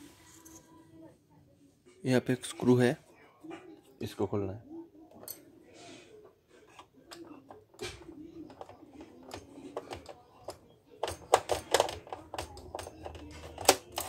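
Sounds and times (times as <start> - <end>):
screwdriver and plastic parts clicking: 6.7 - 14.0.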